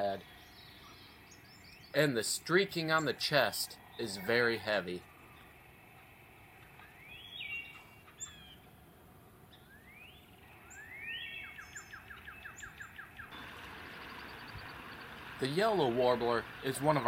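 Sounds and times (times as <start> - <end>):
songbird whistling and trilling: 6.8 - 8.6, 9.5 - 15.2.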